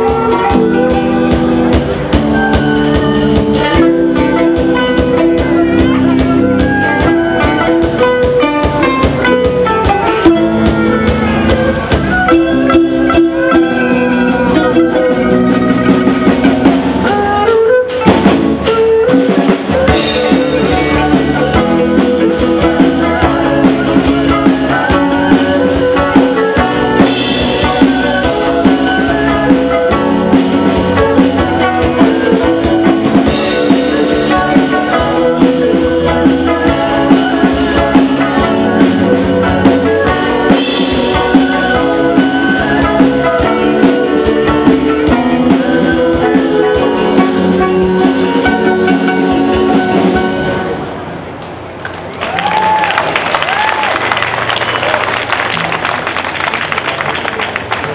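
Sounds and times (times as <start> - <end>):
erhu: 0.0 - 50.7
drum kit beat: 0.0 - 51.0
plucked lutes: 0.0 - 51.6.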